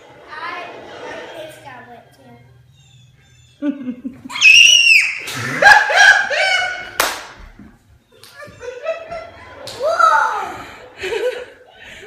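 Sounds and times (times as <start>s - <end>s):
child shrieking and squealing: 4.3s - 5.2s.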